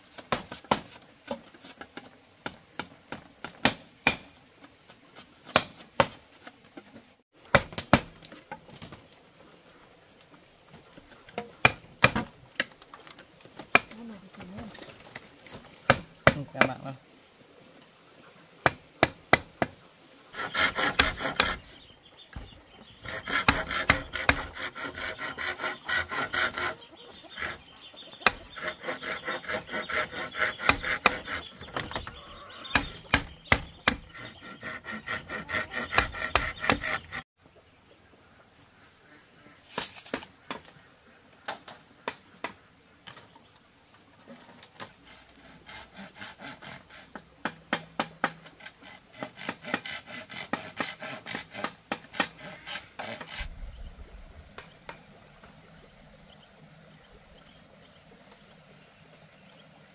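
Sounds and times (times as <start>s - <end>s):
blade strokes on bamboo: 0.0s - 2.2s, 3.4s - 7.0s, 18.6s - 21.8s, 23.0s - 32.0s, 32.6s - 37.3s, 44.8s - 53.8s.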